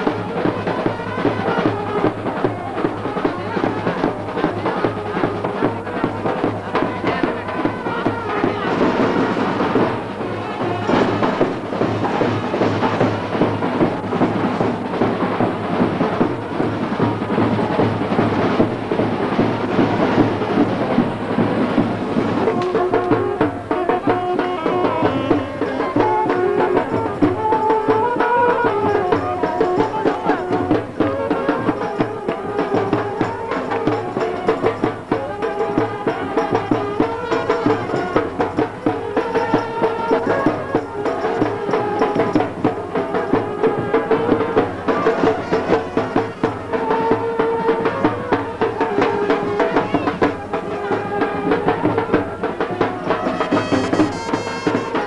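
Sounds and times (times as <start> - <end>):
dense drumming: 0.0 - 55.0.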